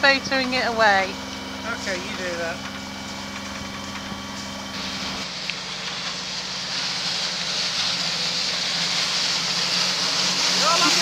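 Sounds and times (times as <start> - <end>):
boat engine humming: 0.0 - 11.0
rushing water spray: 4.7 - 11.0.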